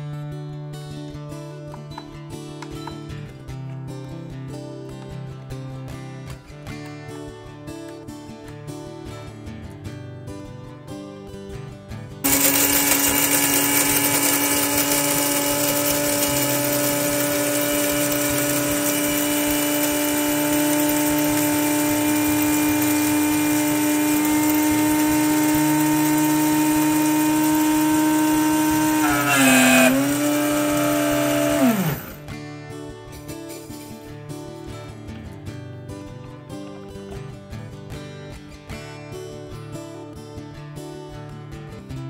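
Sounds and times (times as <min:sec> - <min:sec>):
coffee grinder motor whine: 0:12.2 - 0:32.3.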